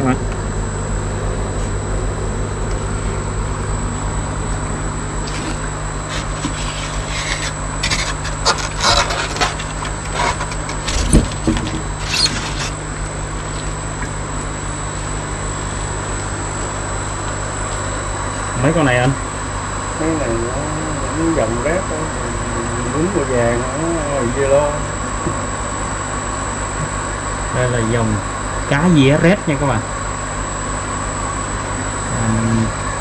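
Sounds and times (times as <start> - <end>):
air pump motors humming: 0.0 - 33.0
foam lid scraping and knocking: 5.2 - 12.8.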